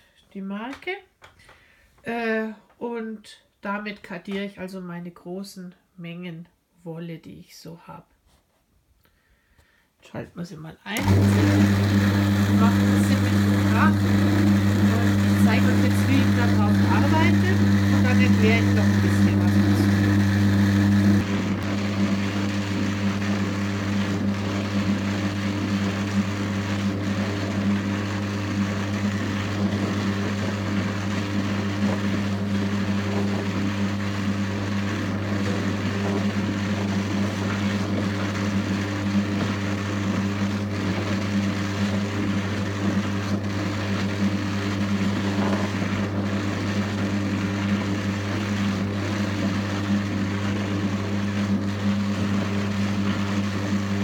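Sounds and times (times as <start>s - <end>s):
drum carder motor hum: 11.0s - 41.9s.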